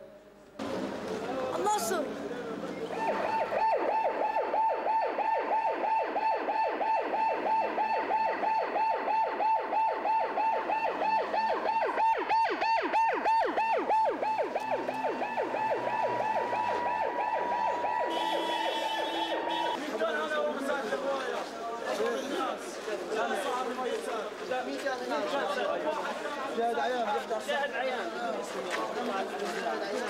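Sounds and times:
ambulance siren yelping: 2.9s - 19.8s.

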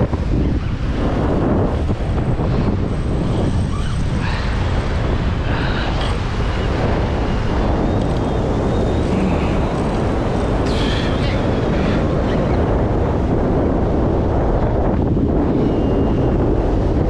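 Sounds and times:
strong wind buffeting microphone: 0.0s - 17.0s
rough sea breaking against rocks: 4.1s - 15.5s.

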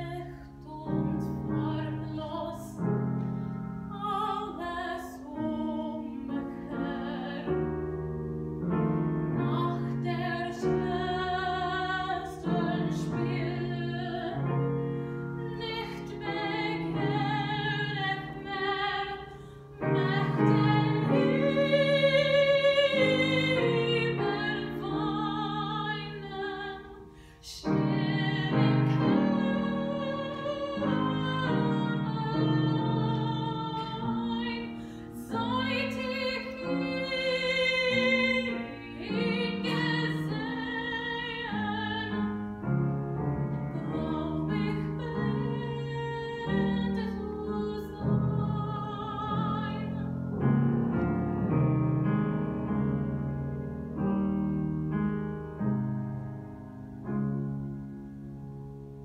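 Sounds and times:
woman singing classical song: 0.0s - 50.6s
grand piano accompaniment: 0.0s - 59.0s.

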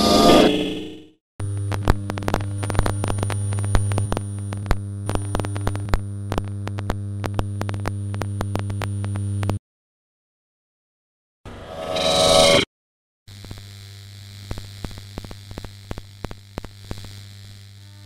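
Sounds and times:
clicks and crackles: 1.4s - 9.6s
thin high whine: 11.5s - 12.7s.

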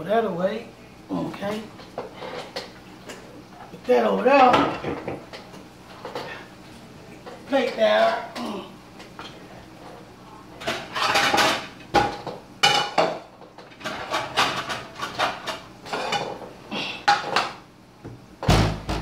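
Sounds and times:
dishes and cutlery clattering: 4.5s - 6.5s, 10.6s - 17.6s
heavy thump: 18.4s - 19.0s.

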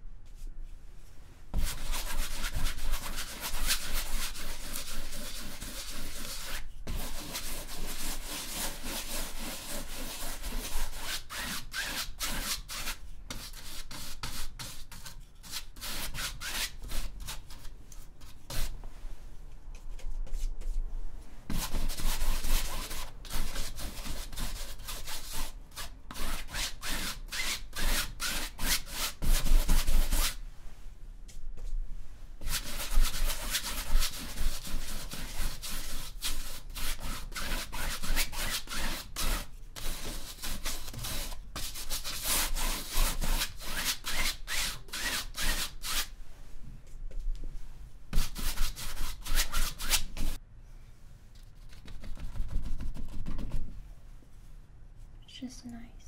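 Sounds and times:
paintbrush scrubbing on canvas: 1.5s - 17.4s.

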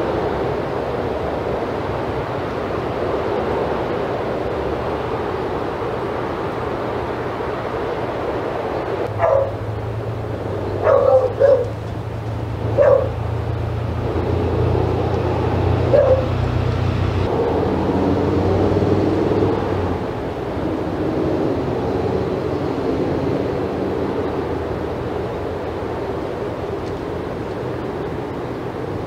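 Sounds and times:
dog barking: 9.1s - 9.6s, 10.8s - 11.8s, 12.7s - 13.2s, 15.9s - 16.4s.

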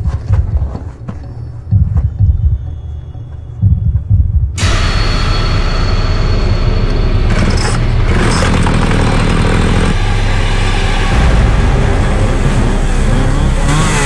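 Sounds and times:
chainsaw engine at high revs: 13.4s - 14.0s.

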